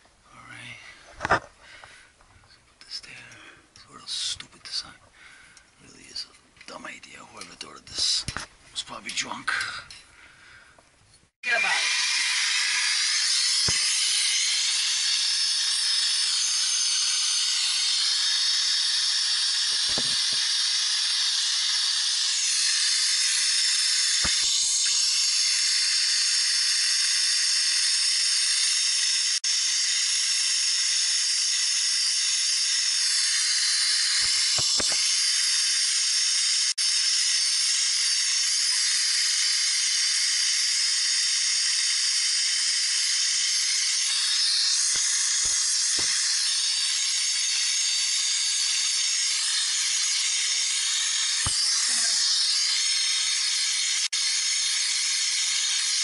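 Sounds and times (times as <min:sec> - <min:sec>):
gas torch flame hissing: 0:11.5 - 0:56.0.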